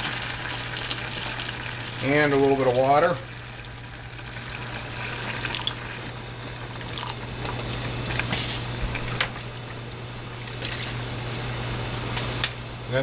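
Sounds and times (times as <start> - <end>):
water pouring into a saucepan: 0.0 - 8.3
stew simmering: 0.0 - 11.7
steady low hum: 0.0 - 13.0.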